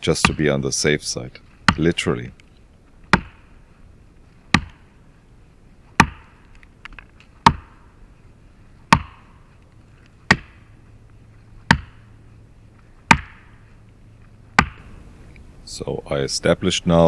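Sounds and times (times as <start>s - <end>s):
axe chopping wood: 0.2s - 0.5s, 1.6s - 2.0s, 3.1s - 3.5s, 4.5s - 4.8s, 6.0s - 6.5s, 7.4s - 7.8s, 8.9s - 9.4s, 10.3s - 10.6s, 11.7s - 12.0s, 13.0s - 13.6s, 14.5s - 14.9s.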